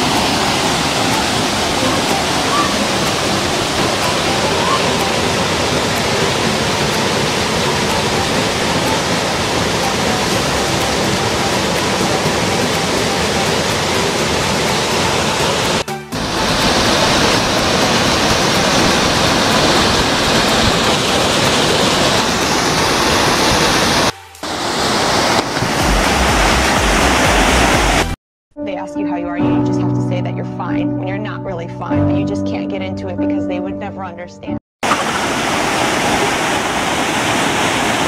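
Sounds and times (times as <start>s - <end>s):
waterfall rushing over rock: 0.0s - 28.2s, 34.8s - 38.0s.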